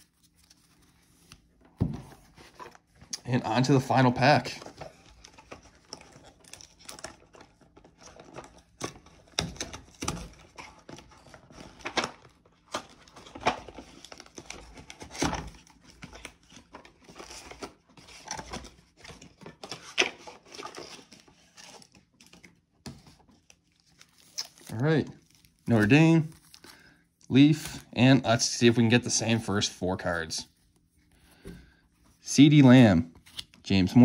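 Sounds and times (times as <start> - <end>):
plastic wrapper crinkling and tearing: 3.2 - 26.9.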